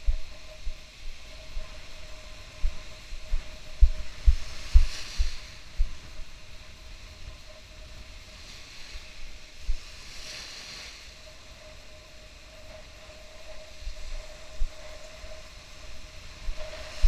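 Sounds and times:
faint steady hum: 0.0 - 17.0
wind buffeting microphone: 0.0 - 17.0
surf washing on shore: 4.1 - 17.0.

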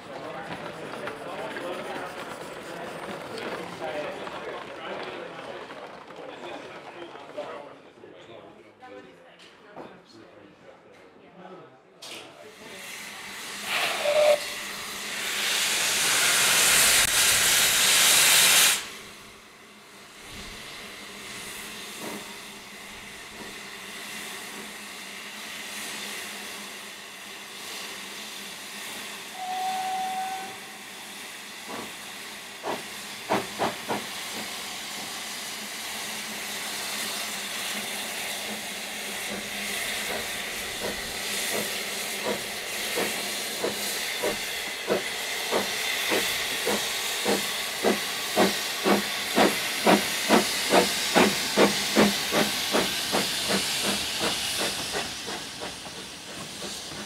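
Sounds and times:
steam locomotive hissing: 0.0 - 6.8, 12.3 - 57.0
steam whistle toot: 13.7 - 14.6, 29.3 - 30.8
steam engine beats: 38.2 - 57.0.

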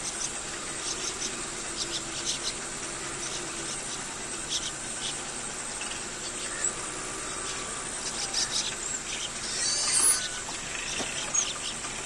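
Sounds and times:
crickets trilling: 0.0 - 12.0.

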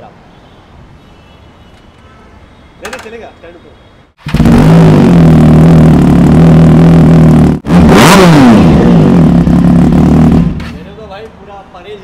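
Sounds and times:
engine revving: 4.2 - 10.8.

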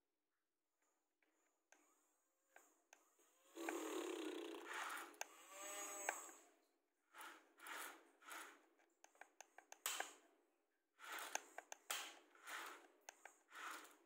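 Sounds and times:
toy gear motors whirring: 3.4 - 6.4, 7.2 - 8.6, 11.0 - 14.0.

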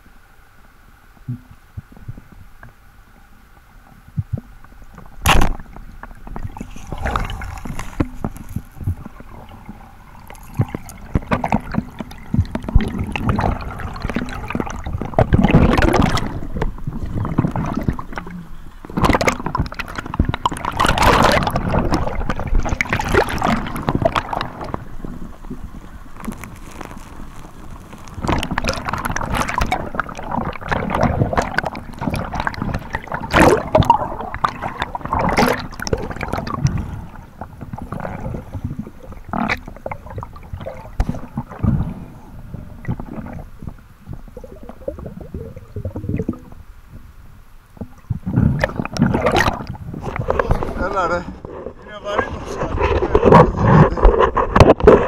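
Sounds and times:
water sloshing and splashing: 4.3 - 47.1, 47.7 - 55.0
rushes of bubbles: 5.1 - 47.1, 47.7 - 55.0
sharp crack: 5.2 - 5.7.

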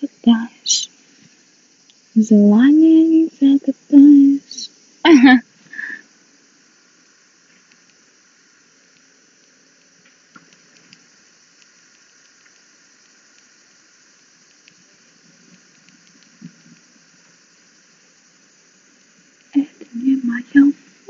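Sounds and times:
faint background hiss: 0.0 - 21.0
small clicks: 7.5 - 8.0, 8.9 - 13.6, 15.5 - 16.9.

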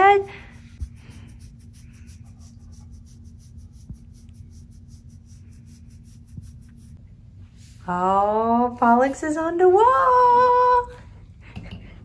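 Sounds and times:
steady low hum: 0.0 - 12.0
hand scratching dog fur: 0.6 - 7.0.

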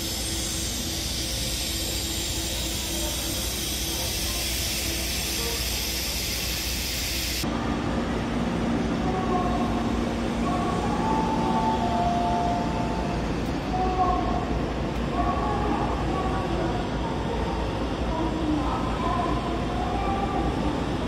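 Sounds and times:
broad outdoor hiss: 0.0 - 7.4
tram low hum: 0.0 - 21.0.

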